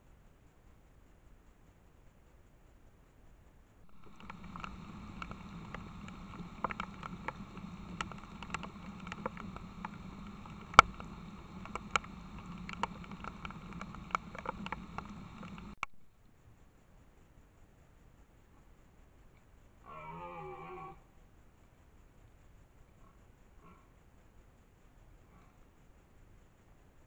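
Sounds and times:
microphone hiss: 2.3s - 22.8s.

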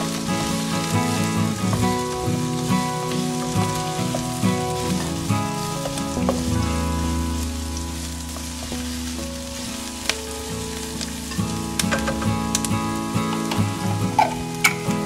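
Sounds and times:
onions sizzling in hot oil: 0.0s - 15.0s.

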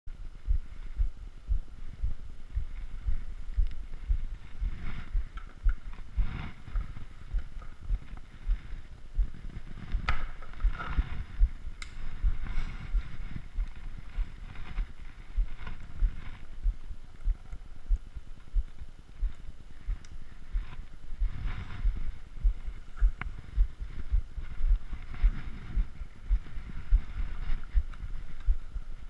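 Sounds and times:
low thumps: 0.2s - 29.0s
sharp clicks: 11.8s - 12.1s.

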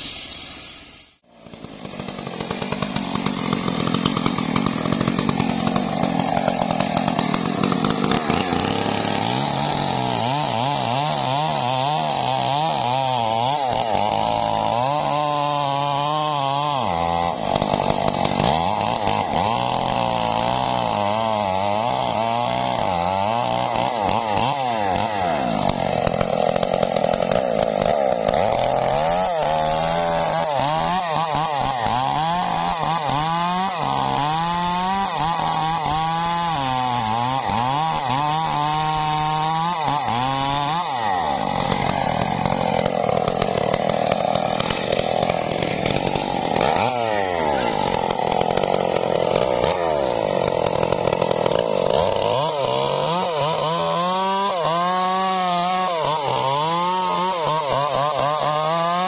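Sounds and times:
chainsaw cutting wood: 0.0s - 59.0s.

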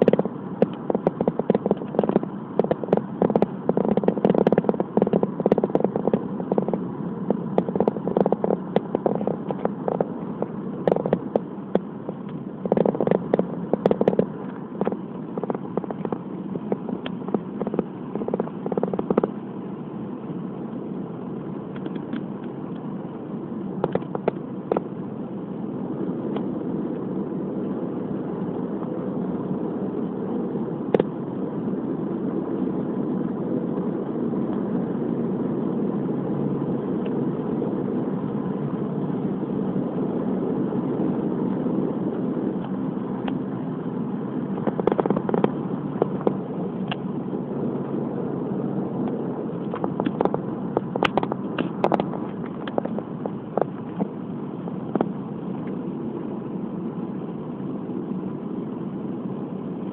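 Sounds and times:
sharp clicks and crackles: 0.0s - 19.5s, 21.7s - 22.9s, 23.8s - 25.0s, 29.9s - 31.2s, 39.8s - 43.7s, 44.4s - 54.2s, 54.8s - 55.9s
car road and engine noise: 0.0s - 59.9s.

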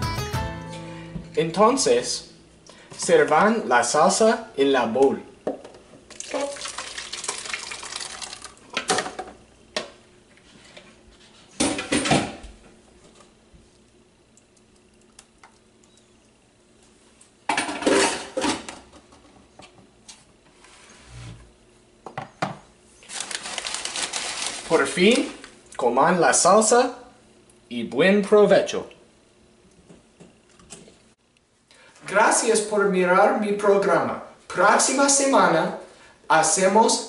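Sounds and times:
salsa pouring into bowl: 6.1s - 8.7s.

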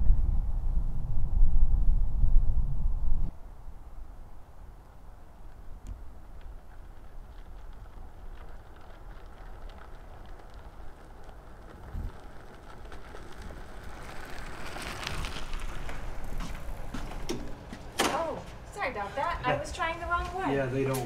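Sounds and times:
wind rumble on microphone: 0.0s - 17.7s
bicycle tyres crunching on gravel: 4.8s - 20.9s.

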